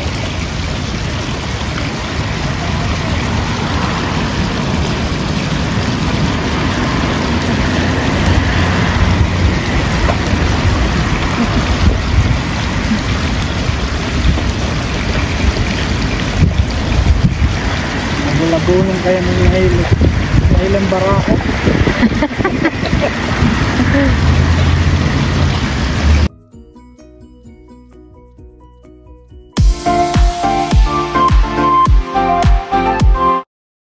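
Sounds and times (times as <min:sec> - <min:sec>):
water splashing in a pool: 0:00.0 - 0:26.3
wind buffeting microphone: 0:00.0 - 0:26.3.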